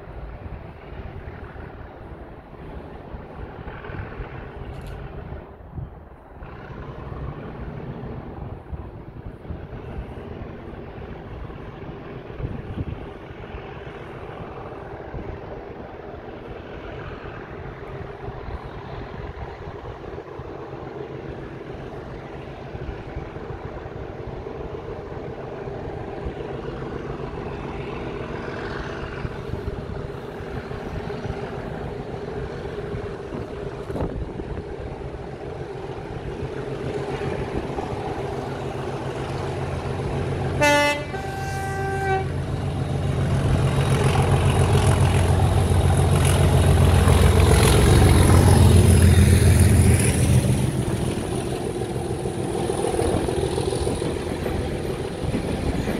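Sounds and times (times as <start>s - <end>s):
diesel locomotive engine: 0.0s - 55.9s
wagons rumbling past: 0.0s - 55.9s
two-note train horn: 40.6s - 42.4s.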